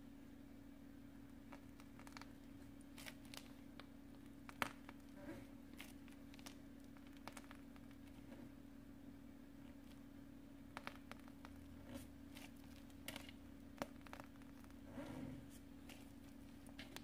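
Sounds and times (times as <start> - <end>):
steady low hum: 0.0 - 17.0
piping bag handling rustles: 1.5 - 8.6, 10.7 - 17.0.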